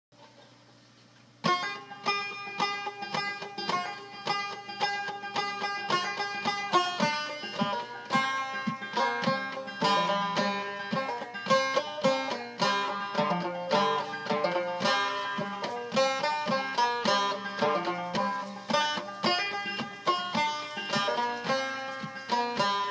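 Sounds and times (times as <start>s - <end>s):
banjo playing: 1.4s - 22.9s.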